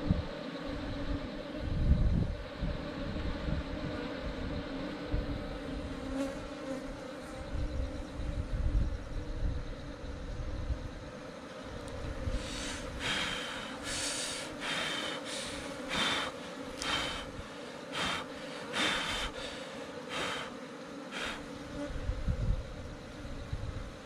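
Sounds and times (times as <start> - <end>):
bees buzzing: 0.0 - 24.0
short breathy puffs: 12.4 - 17.3.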